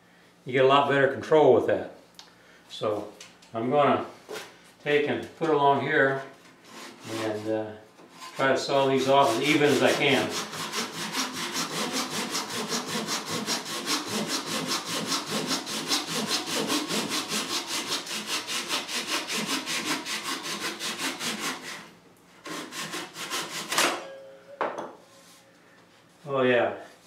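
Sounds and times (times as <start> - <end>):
hand saw cutting wood: 6.6 - 24.0.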